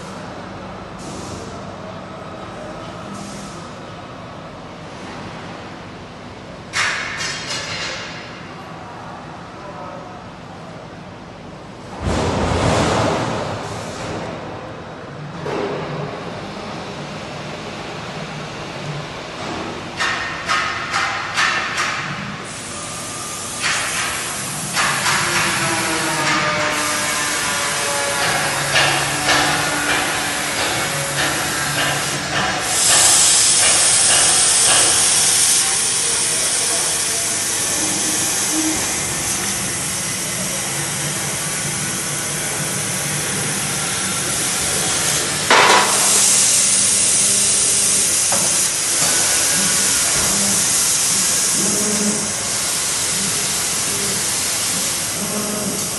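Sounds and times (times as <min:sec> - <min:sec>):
laser cutter gas hiss: 0:22.4 - 0:55.9.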